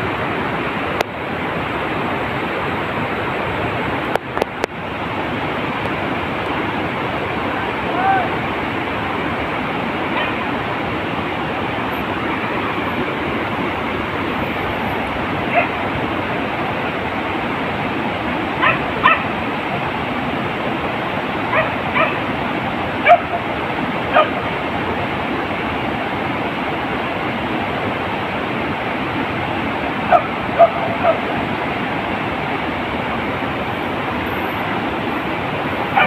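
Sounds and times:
rushing background noise: 0.0s - 36.0s
dog barking in high yelps: 10.2s - 10.4s, 15.5s - 15.8s, 18.6s - 19.3s, 21.5s - 22.2s, 23.0s - 23.4s, 24.1s - 24.4s, 30.1s - 31.2s.

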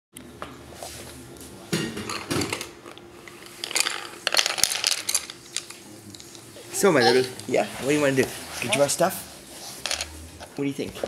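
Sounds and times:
colored pencils clattering: 3.6s - 6.4s, 9.8s - 10.1s.

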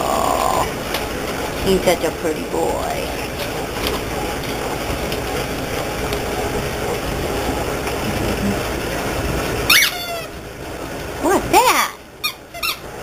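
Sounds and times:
puppy yelp: 9.7s - 10.3s, 12.2s - 12.9s.

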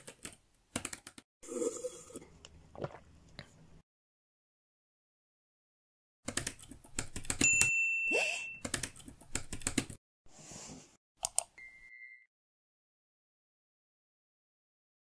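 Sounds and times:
laptop keyboard typing: 0.0s - 1.2s, 6.3s - 7.7s, 8.6s - 10.0s
bright bell-like chime: 7.4s - 8.6s.

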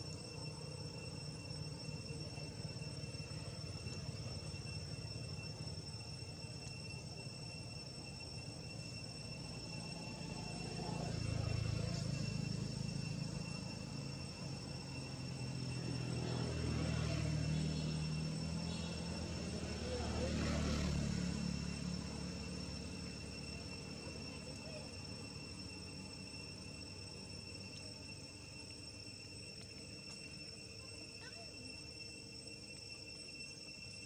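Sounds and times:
insects droning: 0.0s - 34.0s
low engine rumble: 9.4s - 28.5s.

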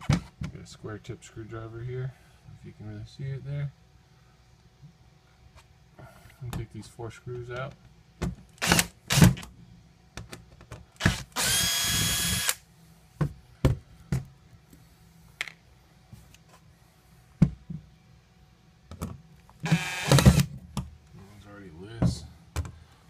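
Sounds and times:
cordless drill motor whine: 11.0s - 12.6s, 19.6s - 20.5s.

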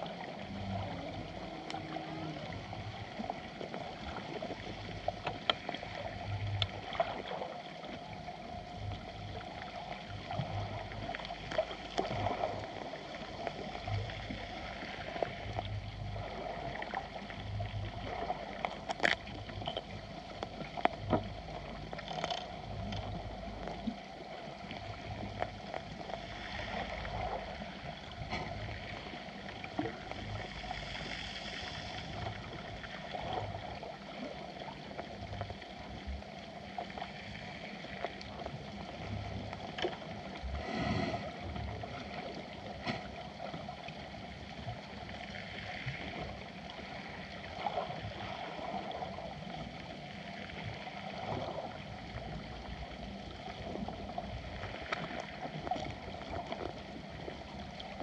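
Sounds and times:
underwater water rush: 0.0s - 58.0s
sharp underwater clicks: 21.9s - 23.1s.

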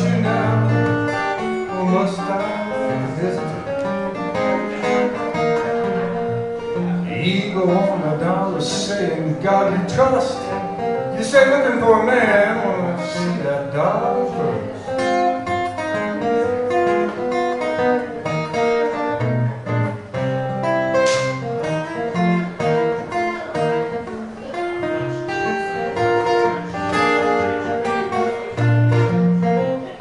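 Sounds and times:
acoustic guitar blues picking: 0.0s - 30.0s.

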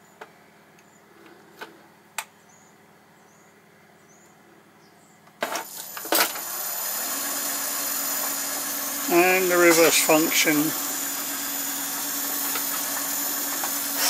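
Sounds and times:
electric motor running: 5.8s - 14.0s.

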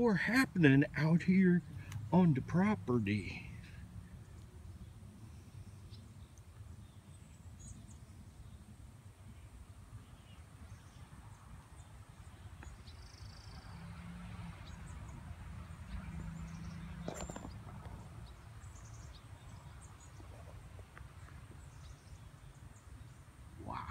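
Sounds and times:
faint bird chirps: 16.3s - 23.9s.

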